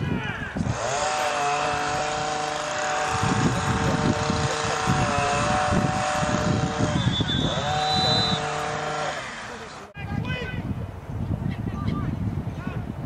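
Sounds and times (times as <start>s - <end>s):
motor droning: 0.6s - 9.9s.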